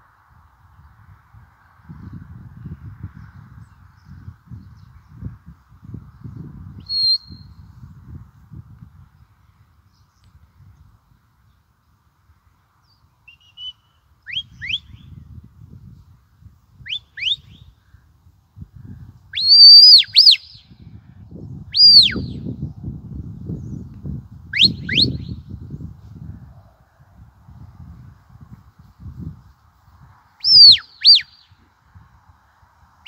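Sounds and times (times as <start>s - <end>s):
shepherd's whistle: 6.8s - 7.6s, 13.3s - 15.1s, 16.9s - 17.6s, 19.4s - 20.7s, 21.8s - 22.5s, 24.6s - 25.4s, 30.4s - 31.5s.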